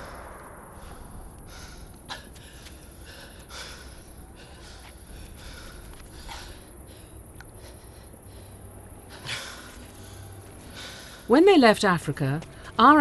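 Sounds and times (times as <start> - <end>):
man breathing hard and gasping: 0.0 - 11.2.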